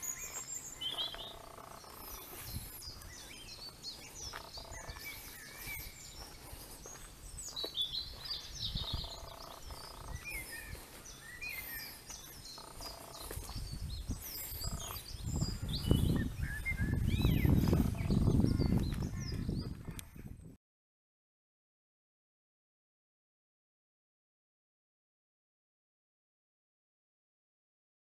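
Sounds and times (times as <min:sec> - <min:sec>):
small birds chirping: 0:00.0 - 0:20.5.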